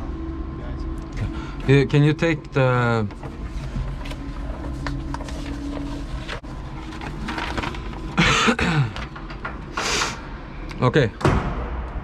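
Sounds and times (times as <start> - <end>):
person coughing: 8.2 - 9.0.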